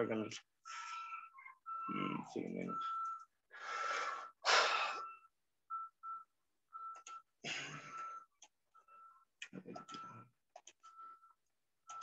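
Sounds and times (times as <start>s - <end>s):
breathing into microphone: 3.5s - 5.0s.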